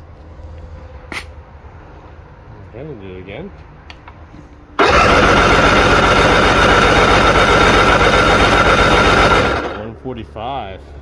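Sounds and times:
electric starter cranking: 4.8 - 9.9
outboard motor running with whine: 4.8 - 9.9.

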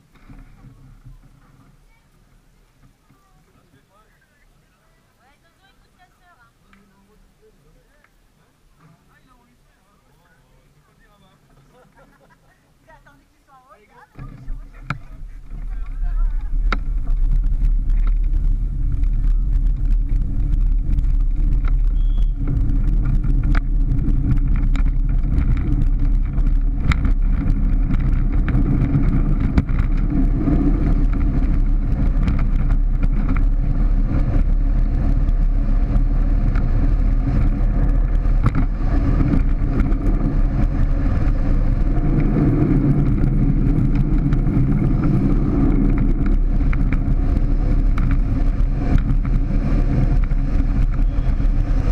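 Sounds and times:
wheels rumbling on road: 0.0 - 51.9
faint rattles: 10.1 - 51.9
wind buffeting microphone: 14.1 - 51.9.

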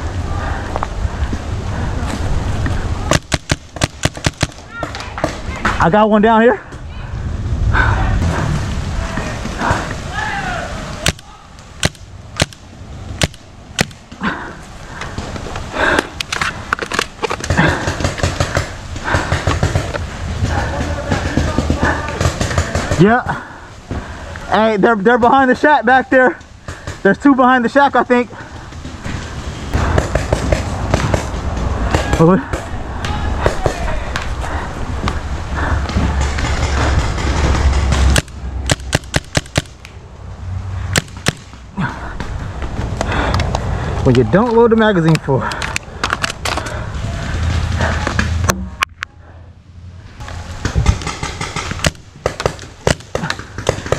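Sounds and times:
steady rushing noise: 0.0 - 53.9
paintball markers firing: 3.1 - 5.4, 11.8 - 14.0, 36.2 - 39.9, 50.6 - 53.9.

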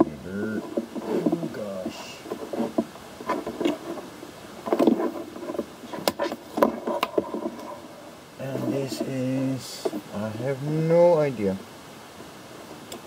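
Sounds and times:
cables rustling and knocking: 0.0 - 10.1.

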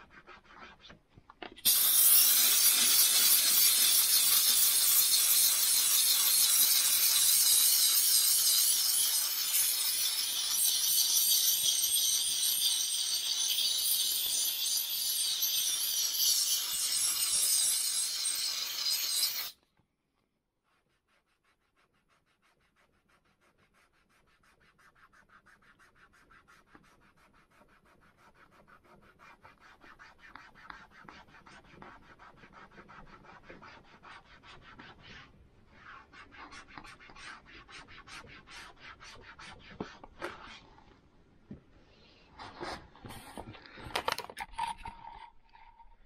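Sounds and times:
steam cleaner hissing: 1.7 - 7.1.

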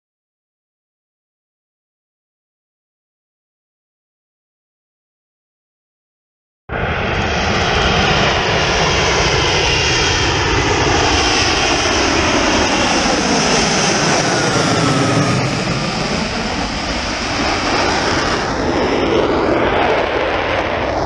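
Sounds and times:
loud steady jet noise: 6.7 - 21.0.

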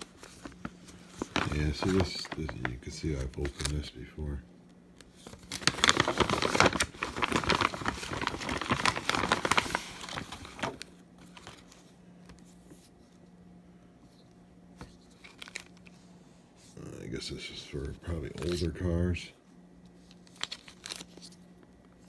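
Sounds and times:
plastic bag crinkling: 0.0 - 3.9, 5.2 - 11.8, 15.0 - 15.9, 20.1 - 21.5.

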